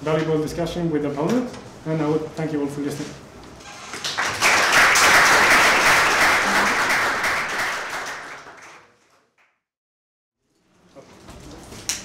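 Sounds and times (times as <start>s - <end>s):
audience applauding: 4.0s - 9.0s.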